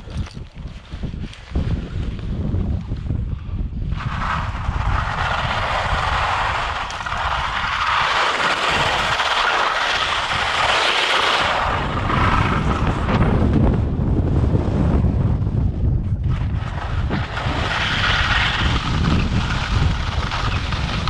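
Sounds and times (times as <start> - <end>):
wind rumbling on microphone: 0.0 - 21.0
skis hissing over snow: 3.9 - 13.0, 16.6 - 21.0.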